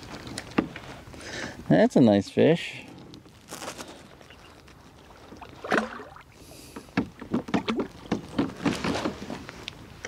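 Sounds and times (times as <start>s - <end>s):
fish splashing at water surface: 5.4s - 6.5s.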